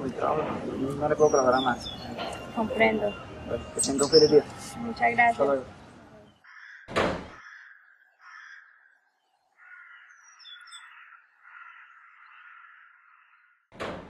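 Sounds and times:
faint bird chirping: 0.8s - 13.6s
metal gate banging shut: 6.9s - 7.4s, 13.8s - 14.0s.

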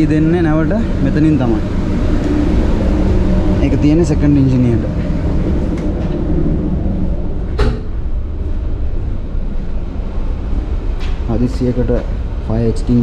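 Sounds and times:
low rumble of ship machinery: 0.0s - 13.0s
door latching shut: 7.6s - 7.9s.

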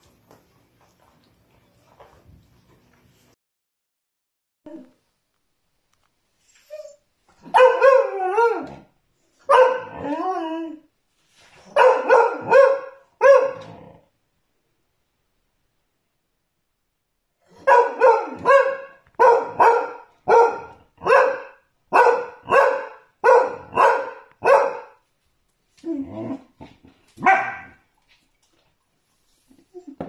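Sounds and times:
dog barking: 7.4s - 8.7s, 9.5s - 10.0s, 11.7s - 13.7s, 17.5s - 25.0s, 27.2s - 27.8s.

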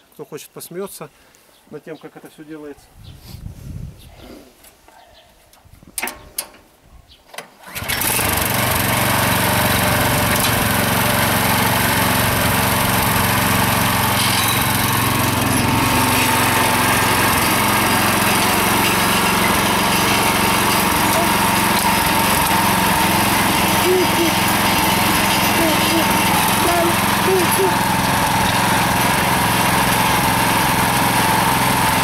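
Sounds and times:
tractor engine starting and running: 7.6s - 32.0s.

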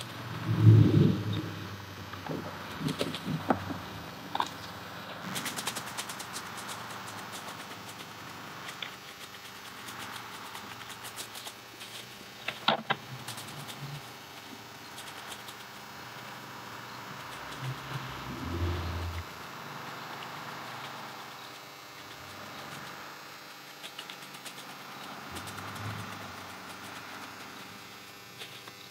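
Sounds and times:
twigs rustling and crackling: 0.4s - 16.4s, 23.7s - 28.9s.

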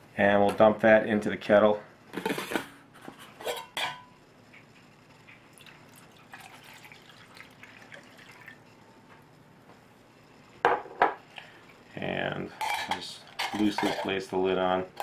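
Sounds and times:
water trickling into kettle: 5.5s - 8.6s.

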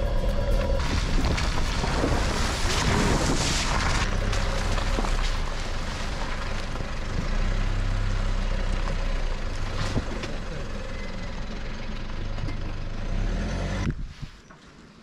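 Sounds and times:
wind noise on microphone: 0.0s - 4.2s, 13.9s - 14.4s
pickup engine low drone: 0.0s - 14.0s.

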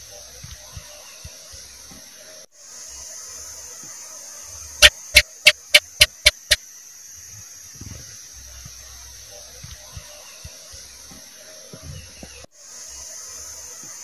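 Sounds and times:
steady hiss: 1.4s - 14.0s
gecko chirping: 4.8s - 6.6s.

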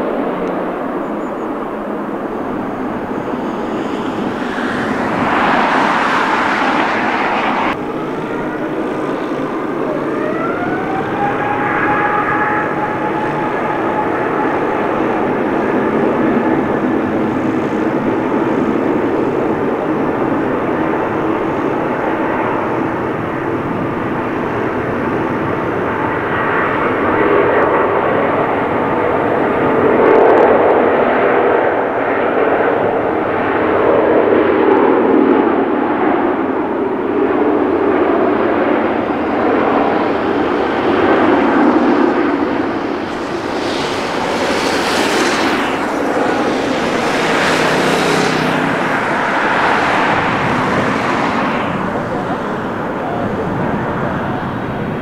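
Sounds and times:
jet engines running: 0.0s - 55.0s
high hiss rush: 41.7s - 52.6s.

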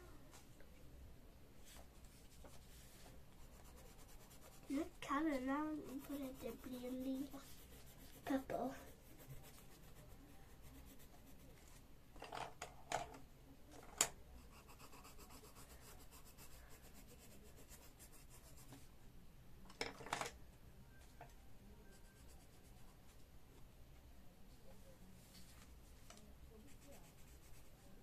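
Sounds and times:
pencil scratching on paper: 1.6s - 11.8s, 14.4s - 18.8s, 21.9s - 22.9s, 26.6s - 27.9s.

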